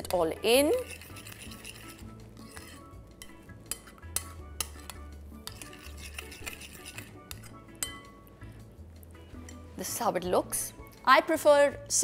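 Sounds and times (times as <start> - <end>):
spoon stirring in glass bowl: 0.0 - 8.2
spoon clinking against glass: 2.6 - 8.1.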